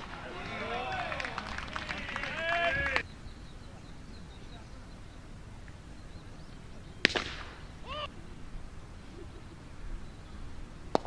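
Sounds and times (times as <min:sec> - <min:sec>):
person calling: 0:07.8 - 0:08.3.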